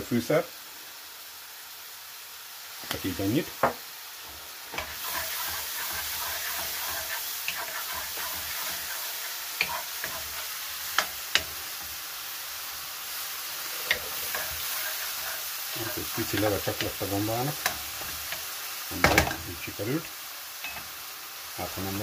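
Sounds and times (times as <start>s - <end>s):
mushrooms sizzling in hot oil: 0.0s - 22.0s
wooden spatula stirring in pan: 3.6s - 19.7s.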